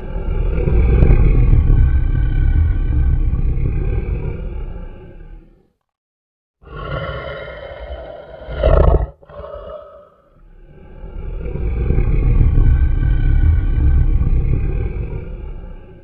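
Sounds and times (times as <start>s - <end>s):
cat growling: 6.6s - 10.4s.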